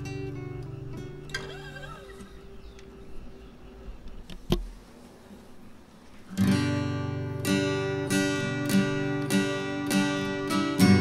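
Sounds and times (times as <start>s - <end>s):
acoustic guitar strumming chords: 0.0s - 2.6s, 6.4s - 11.0s.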